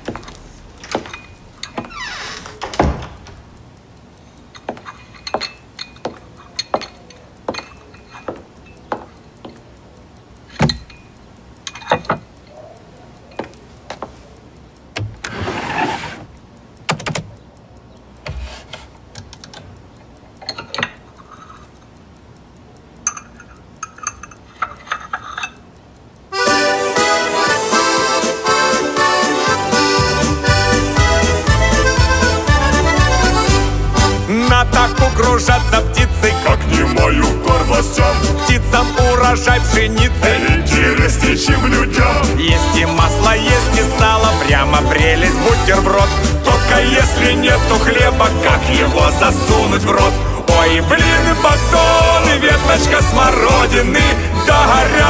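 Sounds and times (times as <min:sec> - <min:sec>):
sharp clicks and knocks: 0:00.0 - 0:15.4, 0:16.2 - 0:26.3
accordion music: 0:26.3 - 0:55.0.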